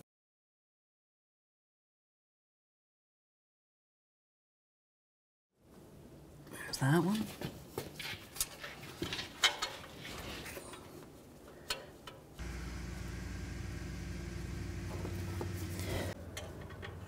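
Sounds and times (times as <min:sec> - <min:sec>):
low mechanical hum: 0:12.4 - 0:17.0.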